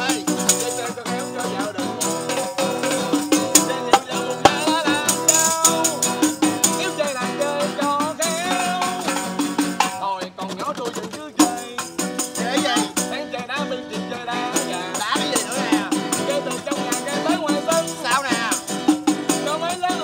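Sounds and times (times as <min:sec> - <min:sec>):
tambourine jingling: 0:00.0 - 0:10.2, 0:11.0 - 0:20.0
man singing: 0:00.0 - 0:20.0
musical accompaniment: 0:00.0 - 0:20.0.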